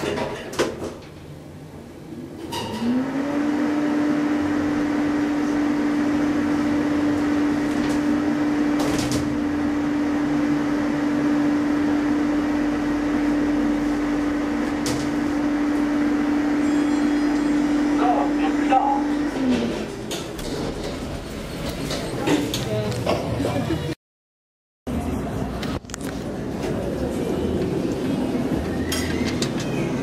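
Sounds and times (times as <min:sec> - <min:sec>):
elevator pump motor humming: 0:02.9 - 0:21.7.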